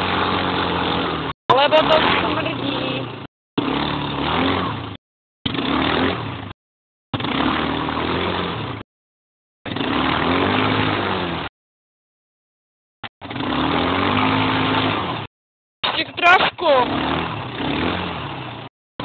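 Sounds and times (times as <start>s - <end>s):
atv engine revving: 0.0s - 8.9s, 9.6s - 11.6s, 13.0s - 15.3s, 15.9s - 18.7s.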